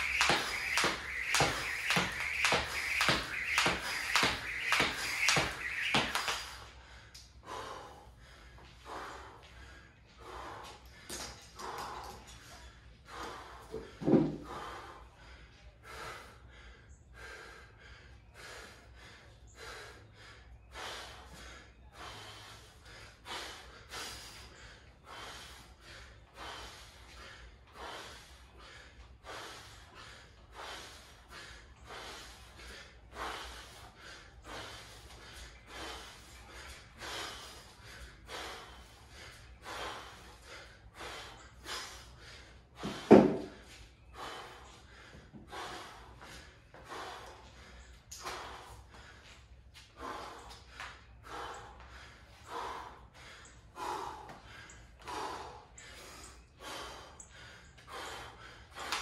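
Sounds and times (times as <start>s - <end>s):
man breathing hard: 6.4s - 59.0s.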